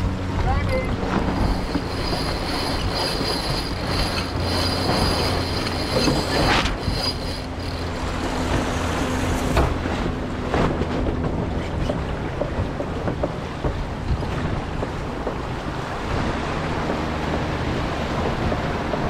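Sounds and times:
wind and water rushing: 0.0s - 19.0s
high-pitched squeal: 1.4s - 8.3s.

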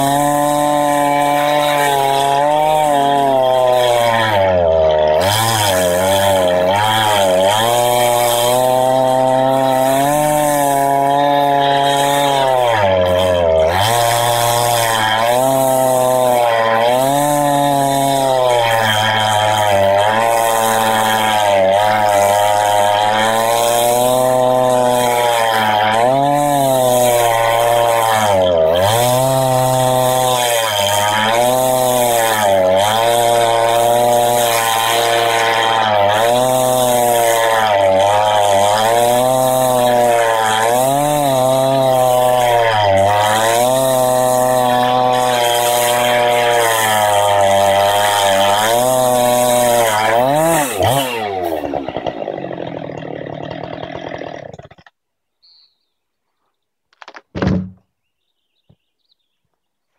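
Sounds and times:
chainsaw cutting log: 0.0s - 55.1s, 56.9s - 57.8s.

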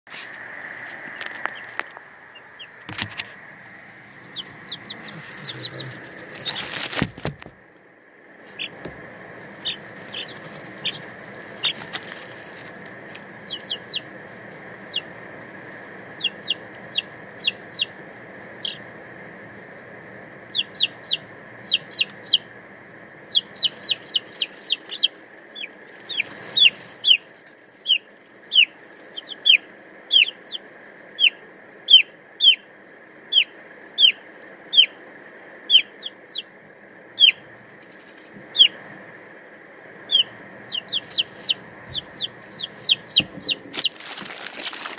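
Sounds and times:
steady high hum: 0.1s - 44.9s
chicks peeping: 1.1s - 3.4s, 4.0s - 7.5s, 8.4s - 18.9s, 20.4s - 22.5s, 23.2s - 35.0s, 35.7s - 38.9s, 40.0s - 44.9s
knocks and rustles: 5.0s - 7.6s, 43.1s - 44.9s.

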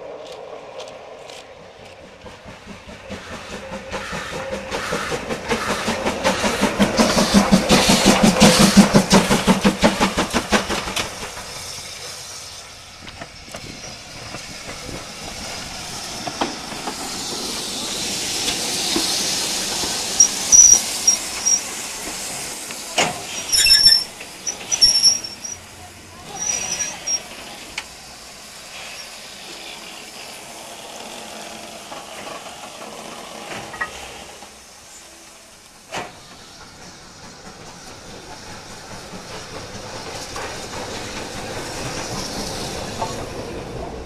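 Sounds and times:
steam hissing: 1.7s - 44.0s
high-pitched squeals: 20.2s - 21.8s, 23.3s - 25.6s.

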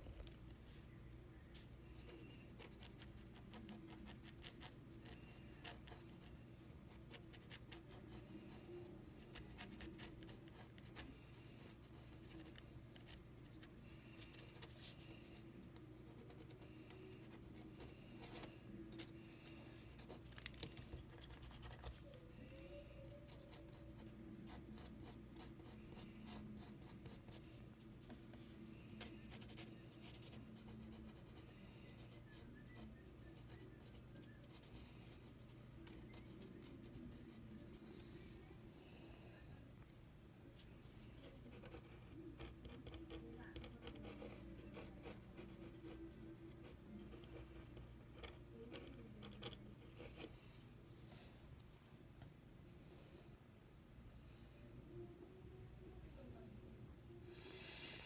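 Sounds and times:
pencil scratching on paper: 1.6s - 38.0s, 40.6s - 50.3s.

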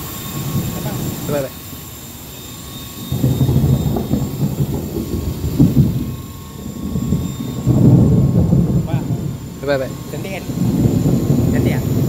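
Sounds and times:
helicopter motor whine: 0.0s - 12.0s
low rumble: 3.0s - 12.0s.

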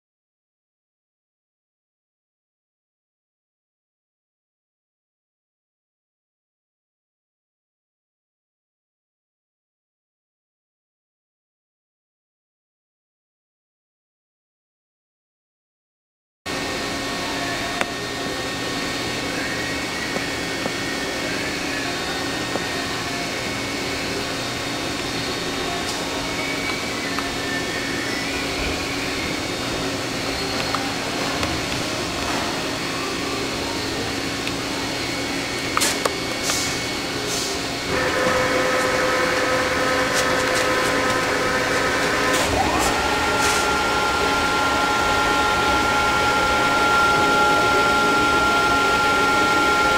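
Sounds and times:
machining centre humming: 16.5s - 49.9s
rising whine: 16.5s - 49.9s.

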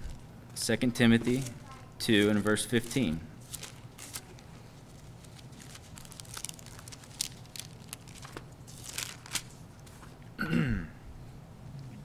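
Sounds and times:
low room hum: 0.0s - 12.0s
pages turning: 2.8s - 10.2s.

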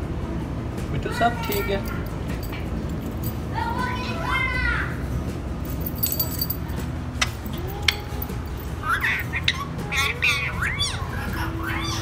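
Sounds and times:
parakeet chirping calls: 8.8s - 12.0s.

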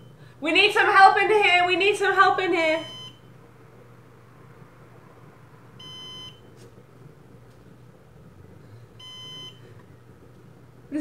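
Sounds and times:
high steady alarm beeps: 2.8s - 3.3s, 5.8s - 6.4s, 9.0s - 9.7s.

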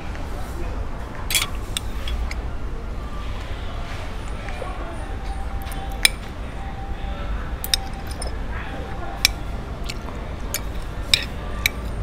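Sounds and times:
cutlery clinking on a plate: 1.3s - 2.4s, 7.6s - 8.4s, 9.2s - 12.0s.

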